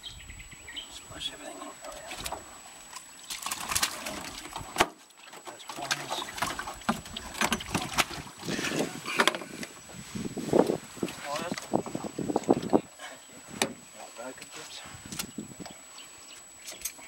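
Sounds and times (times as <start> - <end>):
water splashing in metal boat: 1.9 - 9.8.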